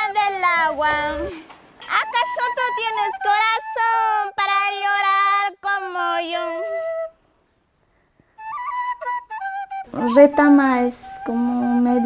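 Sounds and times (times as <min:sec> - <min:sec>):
girl singing folk song: 0:00.0 - 0:06.8, 0:09.9 - 0:12.0
cane flute melody: 0:00.6 - 0:05.1, 0:06.0 - 0:07.2, 0:08.3 - 0:12.0.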